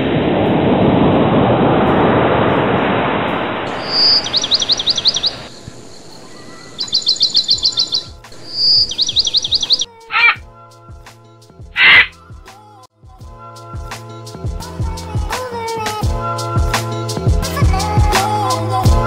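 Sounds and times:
loud rushing noise: 0.0 - 9.0
bird singing whistled phrase: 3.7 - 10.4, 11.8 - 12.1.

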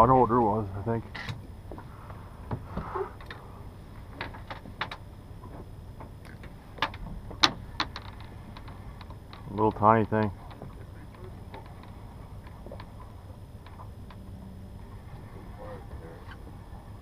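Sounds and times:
low steady rumble: 0.0 - 17.0
fishing gear clicks and knocks: 4.1 - 14.2.

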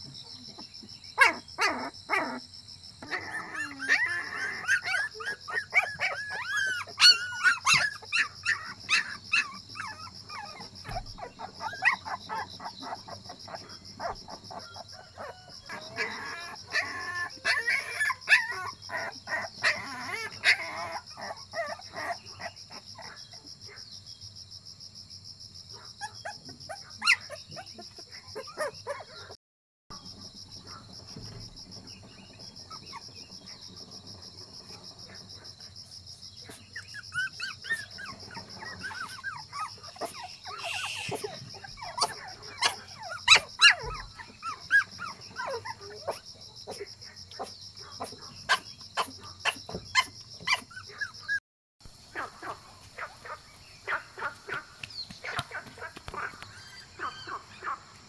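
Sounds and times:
animal yelping and whining: 1.2 - 2.4, 3.0 - 23.2, 26.0 - 29.4, 36.5 - 51.4
high insect drone: 30.0 - 49.8.

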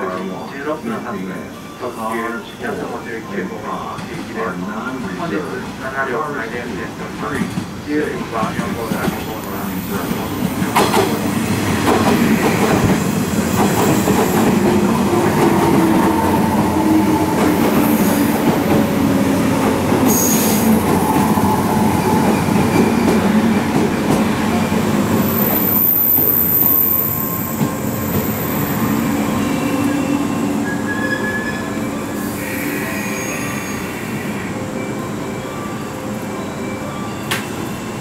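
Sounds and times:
train wheels rumbling on rails: 5.0 - 34.2
high brake squeal: 20.1 - 20.7, 28.8 - 34.5.

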